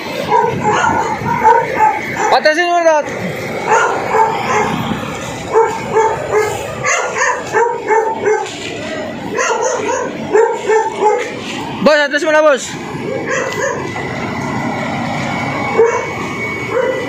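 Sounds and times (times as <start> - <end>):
dog barking: 0.2 - 2.4, 3.6 - 4.8, 5.5 - 8.6, 9.3 - 11.4, 13.2 - 14.0, 15.7 - 17.0.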